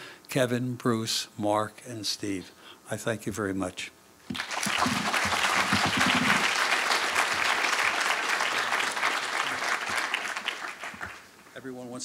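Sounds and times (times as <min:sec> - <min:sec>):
audience applauding: 0:04.3 - 0:11.4.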